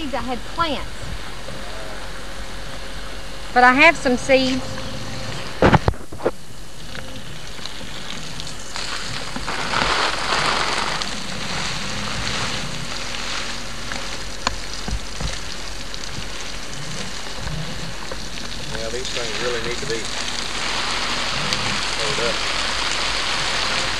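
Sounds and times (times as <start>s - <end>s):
garden hose spraying water: 7.4s - 17.4s, 18.0s - 23.9s.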